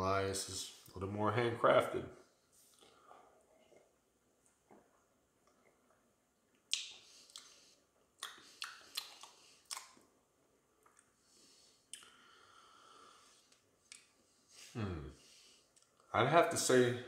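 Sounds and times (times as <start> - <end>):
wet lip smacks and tongue clicks: 6.5 - 7.6, 8.2 - 10.1, 13.5 - 14.1.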